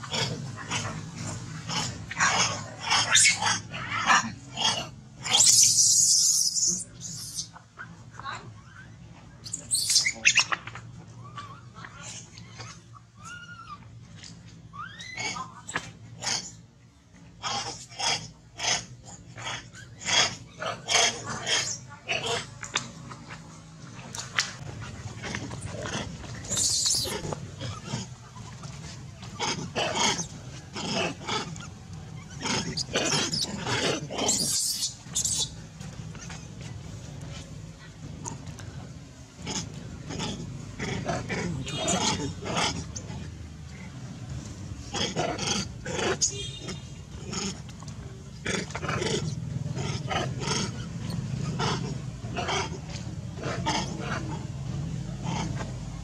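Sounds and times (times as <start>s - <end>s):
baby monkey screaming: 1.7s - 7.6s, 8.3s - 10.6s, 11.2s - 13.9s, 14.7s - 16.5s, 26.4s - 28.5s, 29.4s - 35.6s.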